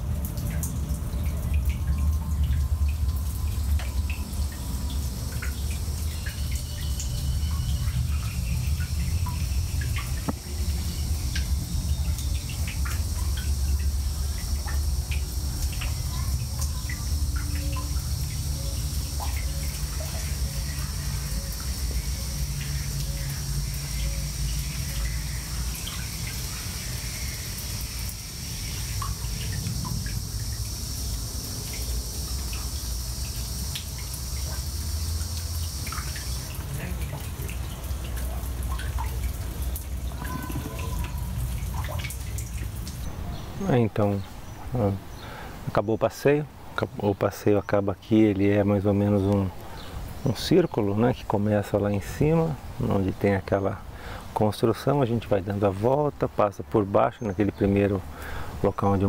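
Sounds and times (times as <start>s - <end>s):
water dripping into pool: 0.0s - 59.0s
high-pitched insect drone: 5.8s - 37.0s.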